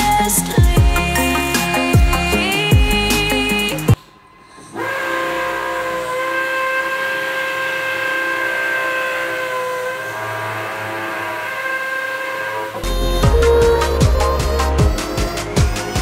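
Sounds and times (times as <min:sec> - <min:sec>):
held synth chord: 0:12.7 - 0:16.0.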